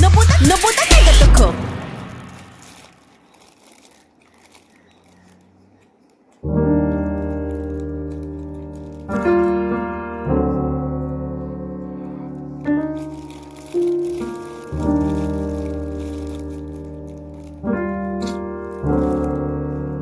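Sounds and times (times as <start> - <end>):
rap track: 0.0 - 2.2
piano playing slow chords: 6.4 - 20.0.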